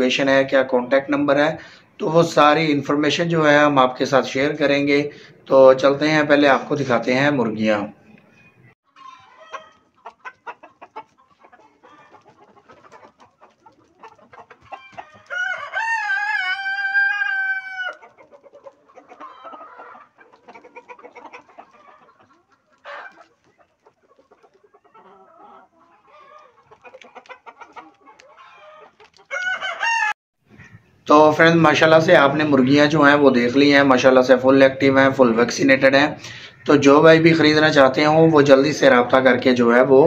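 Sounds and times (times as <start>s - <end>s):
chickens clucking: 0.0s - 40.0s
chicken squawk: 8.9s - 31.0s
rooster crowing: 14.6s - 18.0s, 28.4s - 30.2s.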